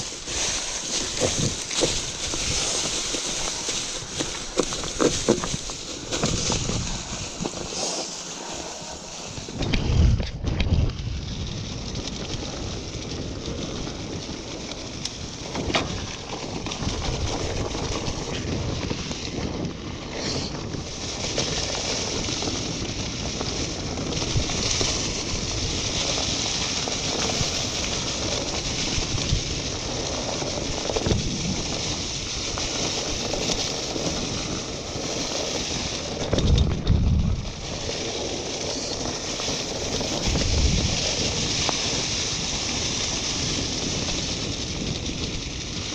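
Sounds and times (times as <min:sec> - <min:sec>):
bike knocking over bumps: 0:00.0 - 0:08.1
bike tyres on dirt: 0:00.0 - 0:45.9
wind on microphone: 0:00.0 - 0:45.9.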